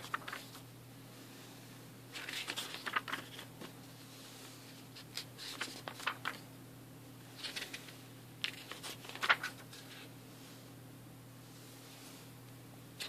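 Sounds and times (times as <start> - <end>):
paper pages rustling: 0.0 - 0.6, 2.1 - 4.0, 4.7 - 6.4, 7.4 - 10.1
steady low hum: 0.0 - 13.0.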